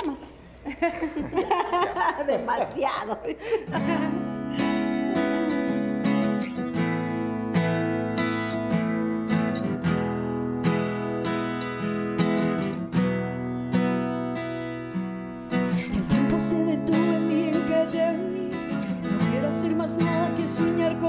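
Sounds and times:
acoustic guitar strumming: 3.7s - 21.0s
woman singing: 15.8s - 21.0s.

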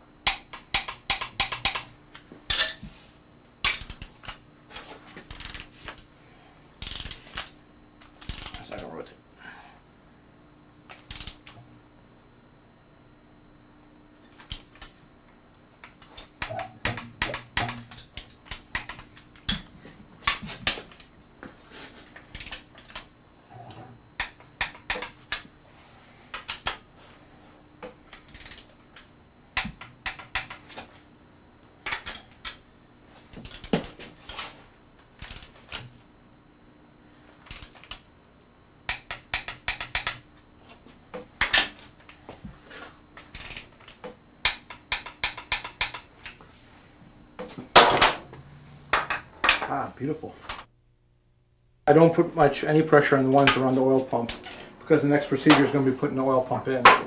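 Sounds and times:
torque wrench ratcheting clicks: 6.8s - 7.5s.

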